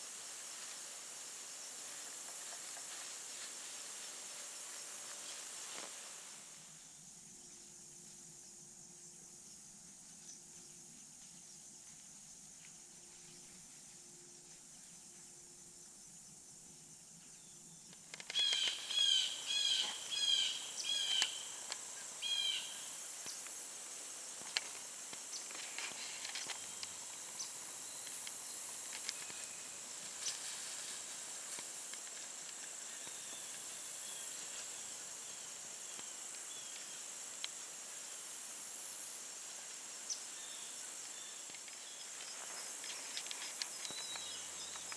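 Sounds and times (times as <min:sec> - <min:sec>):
crickets trilling: 0:00.0 - 0:44.9
bird chirping: 0:17.3 - 0:21.6, 0:43.8 - 0:44.9
scattered ticks: 0:17.9 - 0:18.9, 0:24.4 - 0:29.5, 0:41.4 - 0:44.9.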